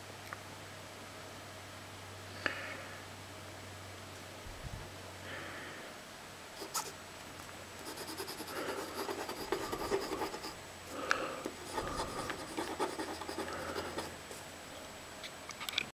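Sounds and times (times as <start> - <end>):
pen scratching on paper: 6.6 - 7.0, 7.8 - 10.6, 11.6 - 14.4.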